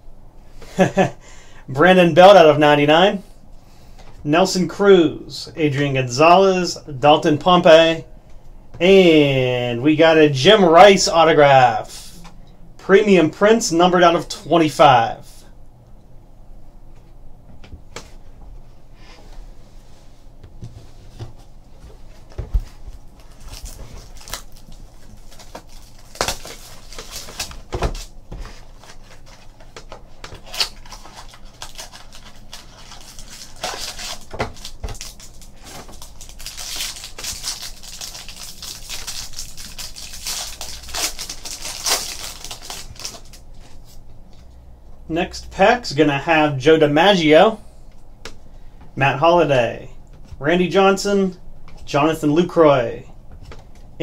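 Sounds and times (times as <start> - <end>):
cardboard pack being opened: 22.6 - 43.4.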